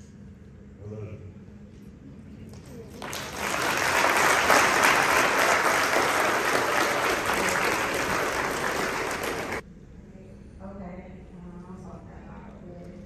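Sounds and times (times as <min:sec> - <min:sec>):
crowd applauding: 0:02.5 - 0:09.6.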